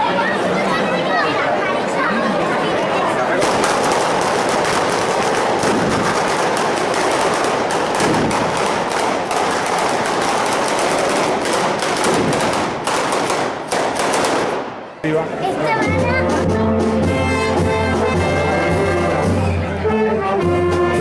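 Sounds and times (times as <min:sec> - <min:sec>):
firecrackers crackling: 0:03.2 - 0:15.0.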